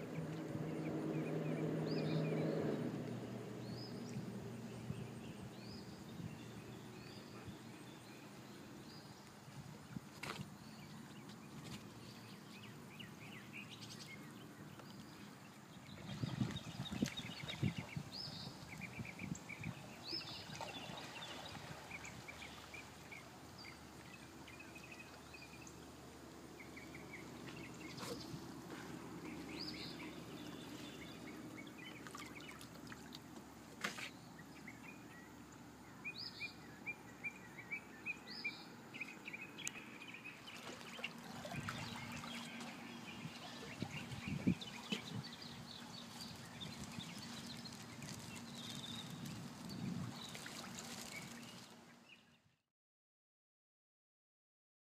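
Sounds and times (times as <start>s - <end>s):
birds chirping: 0.0s - 52.4s
dog paddling through water: 10.6s - 35.2s, 39.3s - 51.8s.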